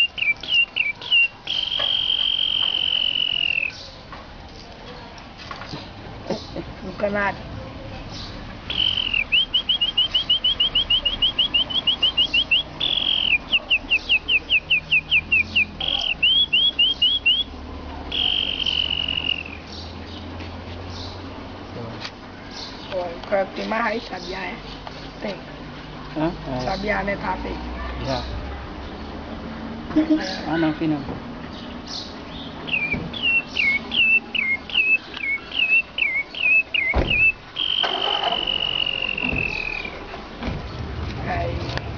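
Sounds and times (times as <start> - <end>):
man whistling birdsong: 0.0 - 3.8, 8.7 - 17.5, 18.1 - 19.7, 32.7 - 40.0
sharp knock: 36.9 - 37.3.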